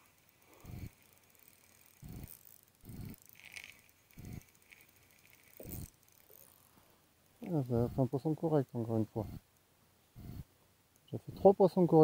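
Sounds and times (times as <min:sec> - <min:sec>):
fishing reel gear whir: 0:00.0 - 0:09.6.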